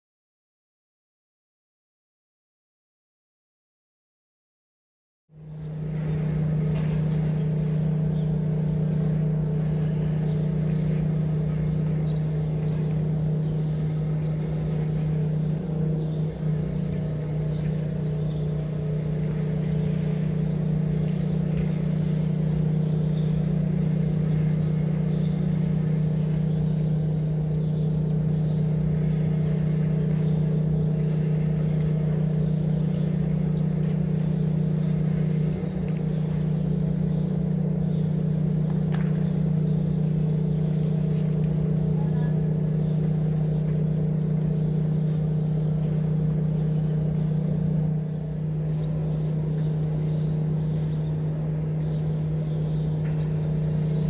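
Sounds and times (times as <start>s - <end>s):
low mechanical hum: 5.3s - 54.0s.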